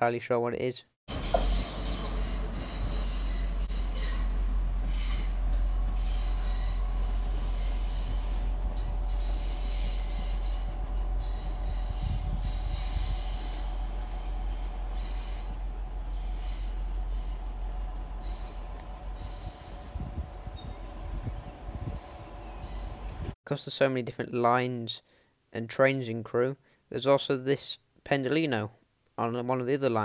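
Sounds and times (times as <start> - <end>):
diesel train engine rumble: 1.1 - 23.4
train wheels squealing: 1.1 - 23.4.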